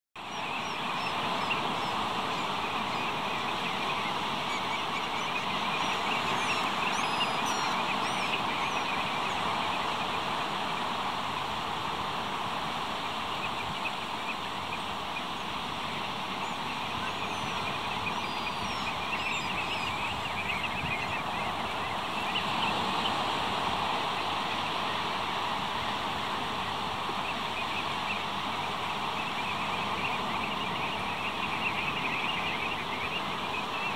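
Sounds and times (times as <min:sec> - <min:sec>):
flock of birds piping: 0:00.2 - 0:33.9
surf rushing on shore: 0:00.2 - 0:33.9.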